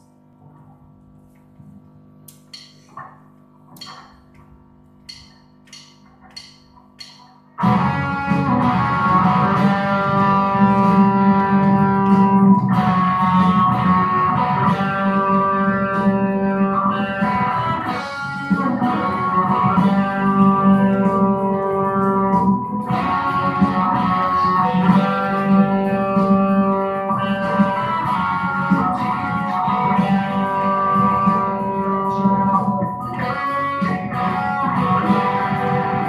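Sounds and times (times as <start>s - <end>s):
sharp count-in ticks: 2.3s - 3.0s, 5.0s - 8.9s
electric guitar rock music: 7.6s - 36.0s.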